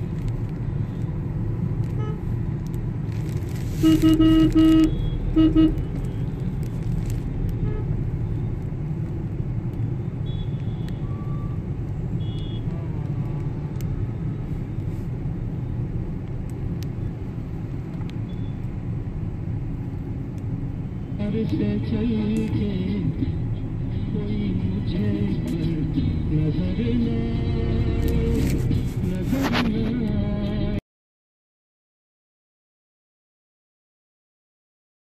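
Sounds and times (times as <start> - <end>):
car engine and road rumble: 0.0 - 30.8
car horn honking: 3.7 - 6.3, 12.2 - 12.7.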